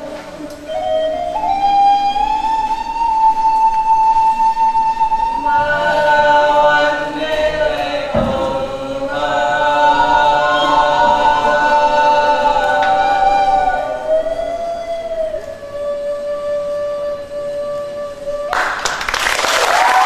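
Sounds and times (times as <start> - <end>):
chanting voices with held notes: 0.0 - 19.1
low thump: 8.0 - 9.2.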